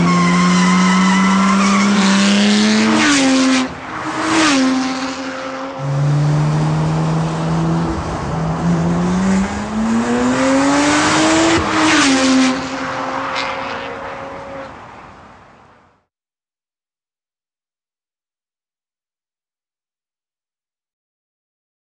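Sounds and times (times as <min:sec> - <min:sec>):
car engine accelerating hard: 0:00.0 - 0:14.6.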